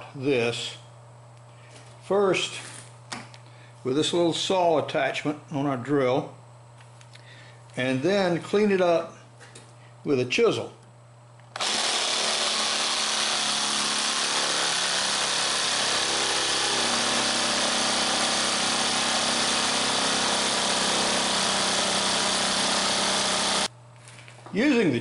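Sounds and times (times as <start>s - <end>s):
jigsaw sawing through wood: 11.6s - 23.7s.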